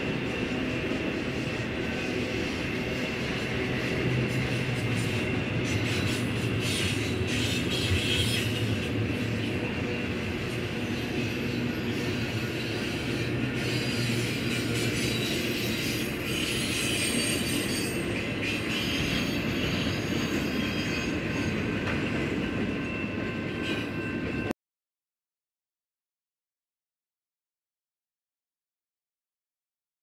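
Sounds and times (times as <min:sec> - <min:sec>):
freight train rolling past: 0:00.0 - 0:24.5
high wheel squeal: 0:00.4 - 0:21.7.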